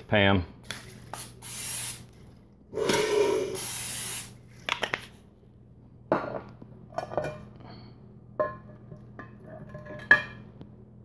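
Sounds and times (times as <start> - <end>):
aerosol spray hiss: 1.2 - 2.1, 3.3 - 4.4.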